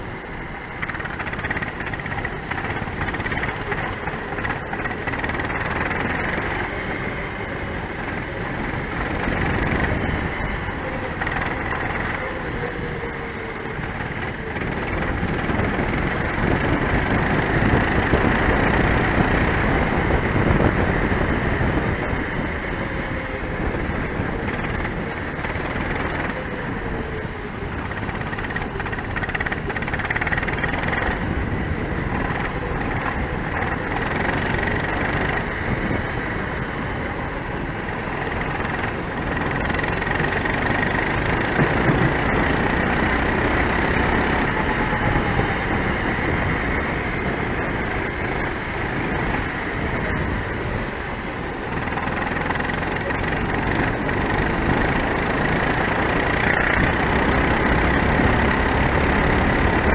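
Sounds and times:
racing kart engine: 0.0s - 59.9s.

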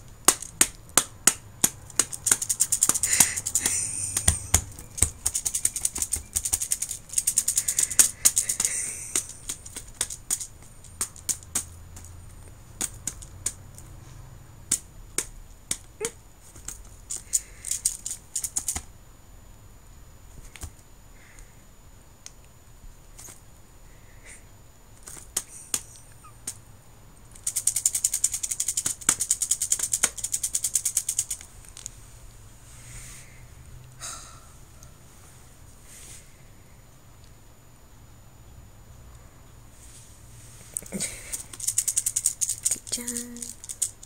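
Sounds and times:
abacus beads rattling: 0.2s - 13.8s, 16.6s - 18.8s, 27.3s - 31.9s, 40.8s - 44.0s.

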